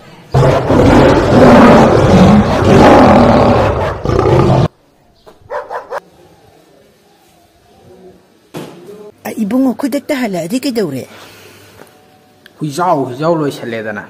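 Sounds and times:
animal roar: 0.3 - 4.7.

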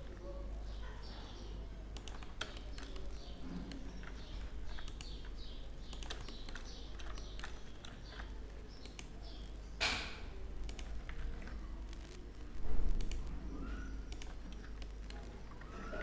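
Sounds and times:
computer keyboard clicks: 1.9 - 9.2, 10.6 - 12.2, 12.9 - 13.3, 14.1 - 15.6
mouse clicks: 2.0 - 12.2, 12.9 - 15.3
faint high chirps: 13.4 - 16.0.

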